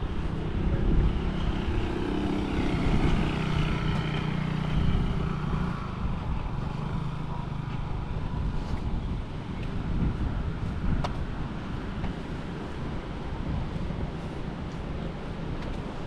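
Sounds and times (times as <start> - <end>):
motorbike engine passing: 0.5 - 8.8.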